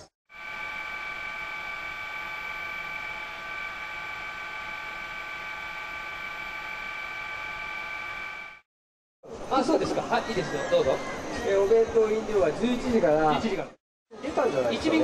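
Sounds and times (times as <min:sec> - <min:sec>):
helicopter noise: 0:00.3 - 0:08.6.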